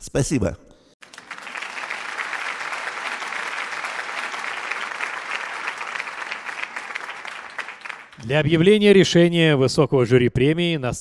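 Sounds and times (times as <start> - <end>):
audience applauding: 1.0 - 8.5.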